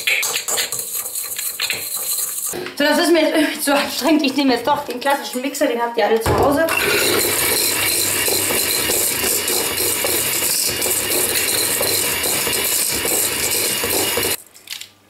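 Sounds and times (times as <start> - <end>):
electric hand mixer running: 6.7 - 14.4.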